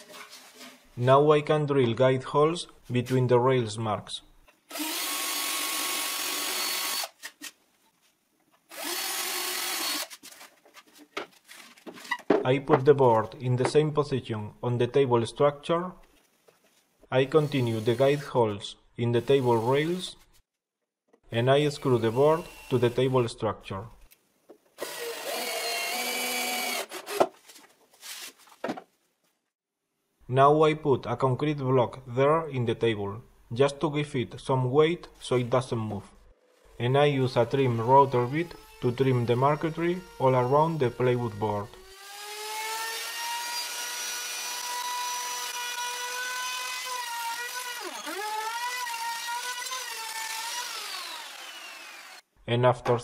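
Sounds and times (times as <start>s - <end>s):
cordless drill boring: 4.7s - 7.2s, 8.7s - 10.1s, 22.0s - 23.0s, 24.8s - 27.2s, 37.8s - 52.3s.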